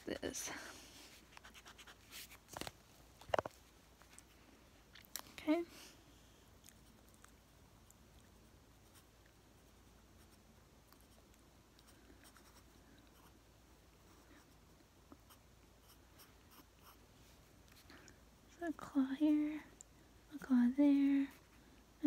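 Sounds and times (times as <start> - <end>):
pencil scratching on paper: 1.3 - 2.2.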